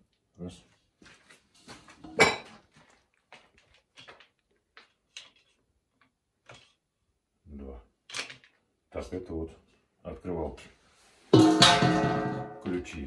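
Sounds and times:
plastic parts clicking and knocking: 0:03.4 - 0:06.8, 0:08.0 - 0:08.7.

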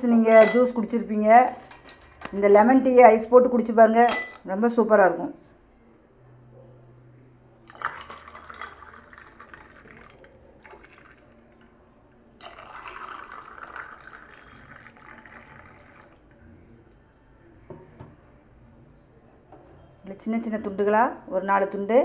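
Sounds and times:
tea pouring over ice: 0:07.7 - 0:11.8, 0:12.4 - 0:16.4.

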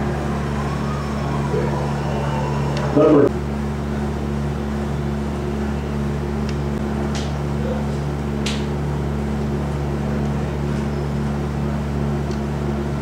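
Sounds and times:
low machine hum: 0:00.0 - 0:13.0.

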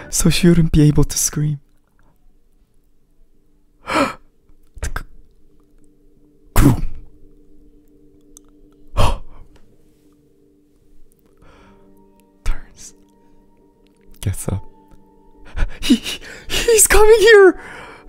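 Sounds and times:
faint background music: 0:00.0 - 0:18.0
person breathing sharply: 0:17.6 - 0:18.0.

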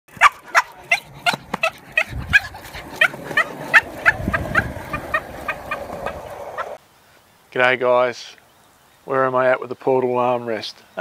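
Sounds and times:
small dog yapping: 0:00.1 - 0:05.0.

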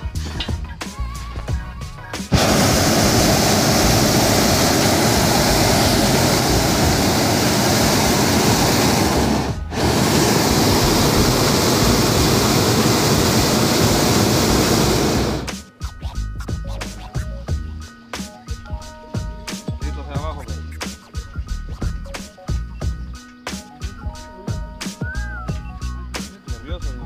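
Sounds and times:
propane burner blast: 0:02.2 - 0:15.6.

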